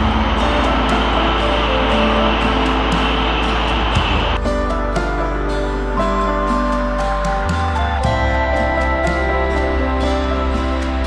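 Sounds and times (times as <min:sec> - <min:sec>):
soft background music: 0:00.0 - 0:11.0.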